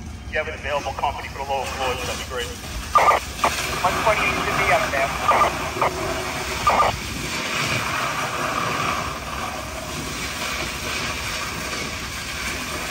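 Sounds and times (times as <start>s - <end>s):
engine drone: 0.0s - 12.9s.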